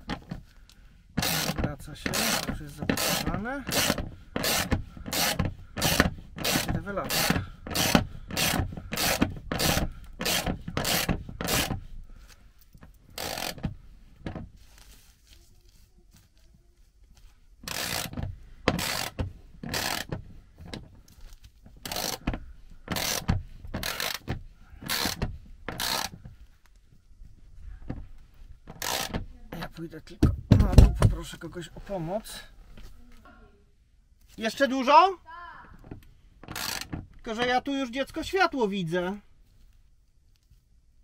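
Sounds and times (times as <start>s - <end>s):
socket ratchet clicking: 1.2s - 11.8s, 13.2s - 13.7s, 17.6s - 20.2s, 21.8s - 22.3s, 22.9s - 26.2s, 36.4s - 37.0s.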